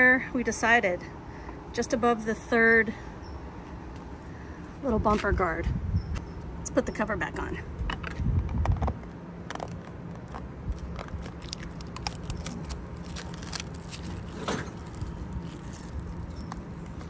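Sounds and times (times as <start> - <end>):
plastic wrap crackling: 9.5 - 17.0.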